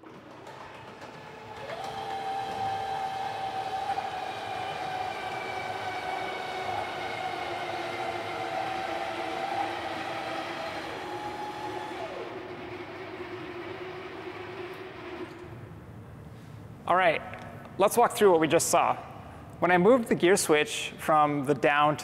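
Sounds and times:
electric motors whining: 0:00.0 - 0:15.9.

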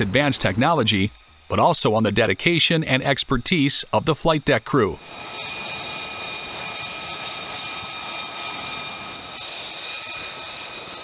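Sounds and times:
jet engine whine: 0:00.0 - 0:11.0
rushing hiss: 0:03.6 - 0:11.0.

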